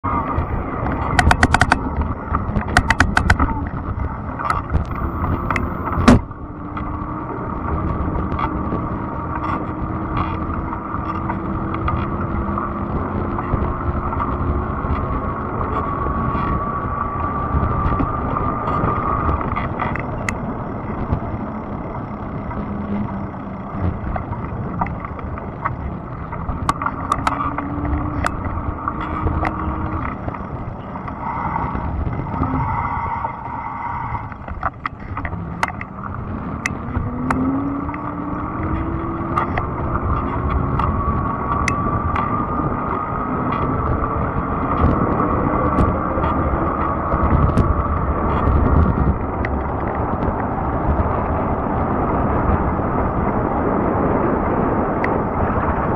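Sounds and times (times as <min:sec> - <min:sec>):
tyre and wind rushing: 0:00.0 - 0:55.9
sharp ticks: 0:00.9 - 0:03.6.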